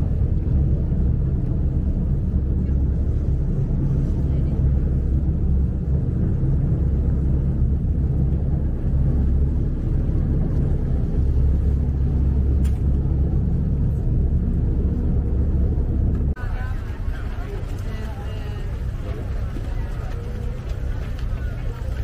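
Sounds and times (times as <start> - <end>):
ferry engines rumbling: 0.0 - 22.0.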